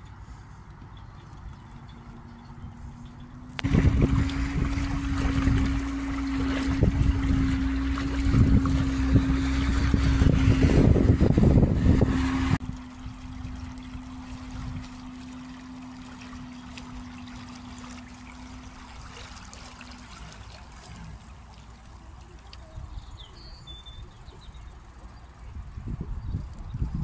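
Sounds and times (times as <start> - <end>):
boat motor humming: 0.0 - 27.0
water splashing and rushing: 3.5 - 27.0.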